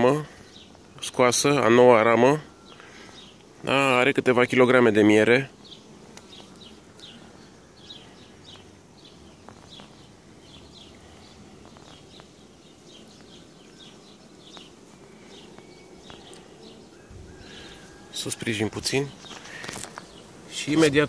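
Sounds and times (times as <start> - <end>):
honeybees humming: 0.0 - 21.0
bird chirping: 5.5 - 21.0.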